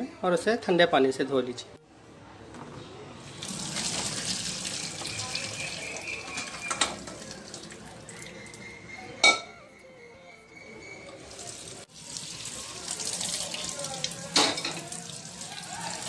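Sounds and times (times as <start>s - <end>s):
water running: 3.2s - 8.8s, 11.0s - 16.0s
water splashing into sink: 3.3s - 8.3s.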